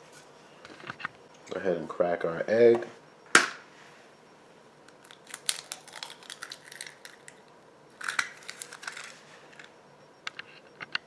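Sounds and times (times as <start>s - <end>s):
eggshell crackling: 4.9s - 9.7s.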